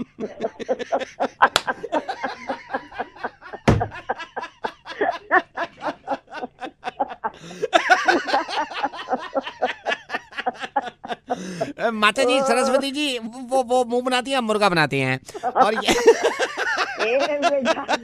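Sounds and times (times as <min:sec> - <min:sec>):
person laughing: 0:00.0 - 0:12.8, 0:15.3 - 0:18.0
loud thump: 0:03.7 - 0:04.0.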